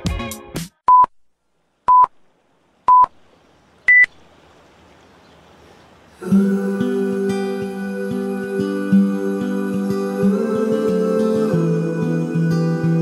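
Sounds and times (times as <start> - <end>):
background music: 0.0 - 0.8, 6.3 - 13.0.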